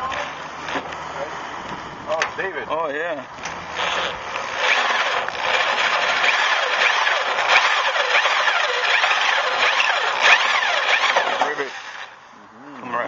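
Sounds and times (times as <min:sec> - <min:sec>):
cordless drill grinding through rivet: 0:03.4 - 0:12.2.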